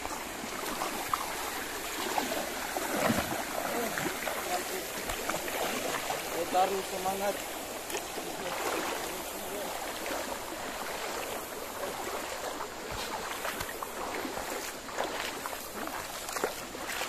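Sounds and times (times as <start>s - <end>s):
stream rushing over stones: 0.0s - 17.0s.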